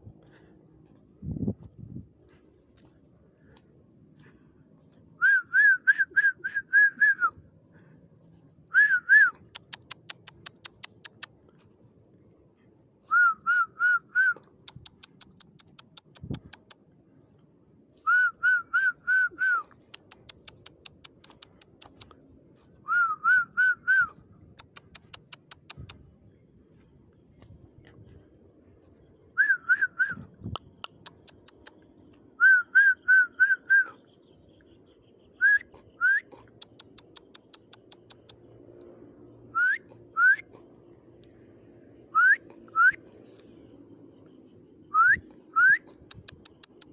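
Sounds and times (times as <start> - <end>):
rapid thin bird ticks: 0.1 - 5.1, 9.3 - 11.8, 14.4 - 17.5, 19.6 - 22.7, 24.4 - 29.1, 30.3 - 32.3, 35.7 - 38.9, 39.9 - 41.4, 42.5 - 43.7, 45.2 - 46.9
bird whistling call: 39.5 - 40.5, 44.9 - 45.9.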